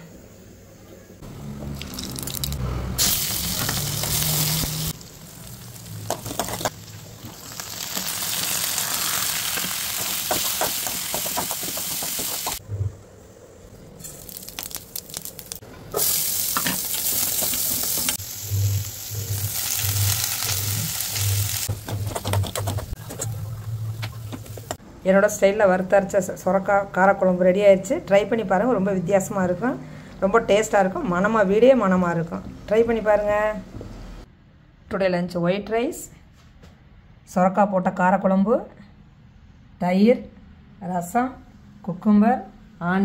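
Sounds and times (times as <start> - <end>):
vegetables sizzling in hot oil: 3.0 - 12.6, 14.0 - 21.8.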